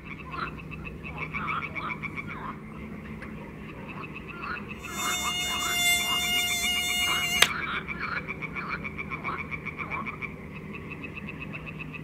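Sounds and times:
fast even trill: 0:04.8 - 0:07.5
held buzzy tone: 0:04.8 - 0:07.5
sharp click: 0:04.9 - 0:07.5.

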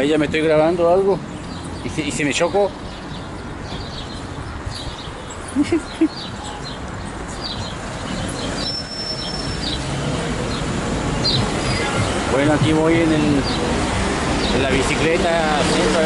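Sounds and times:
wind noise on microphone: 0:02.8 - 0:05.6.

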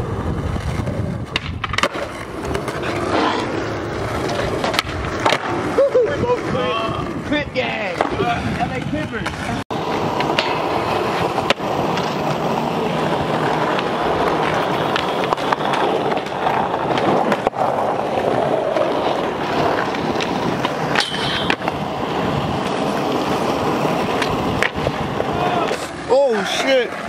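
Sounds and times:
skateboard wheels rolling on concrete: 0:00.0 - 0:27.0
skateboard clacking on ground: 0:00.5 - 0:05.8, 0:07.6 - 0:27.0
high squeal: 0:21.0 - 0:21.6.

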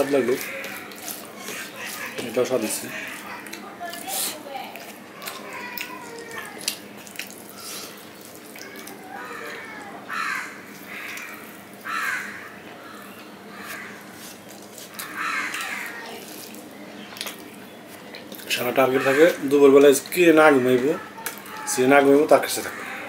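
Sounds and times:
chewing and mouth sounds: 0:00.3 - 0:11.9, 0:13.0 - 0:18.6.

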